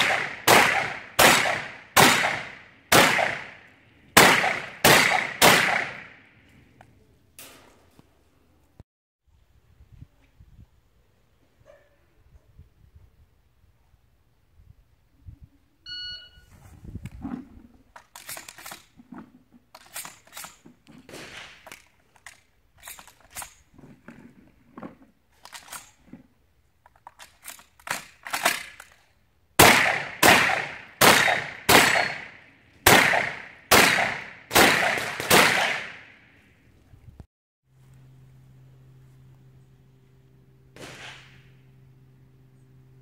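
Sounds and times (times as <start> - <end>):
shotgun shots: 0.0 - 6.2, 21.1 - 21.6, 29.6 - 36.3, 40.8 - 41.6
shot timer beep: 15.9 - 16.5
shells clicking loaded into shotgun: 18.0 - 18.9, 19.7 - 20.7, 21.6 - 23.6, 25.4 - 26.0, 26.8 - 29.0.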